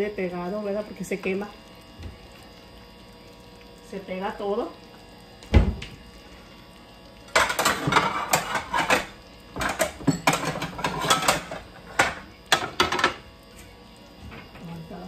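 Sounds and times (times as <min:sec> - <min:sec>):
dishes and utensils clinking: 0:07.3 - 0:13.2.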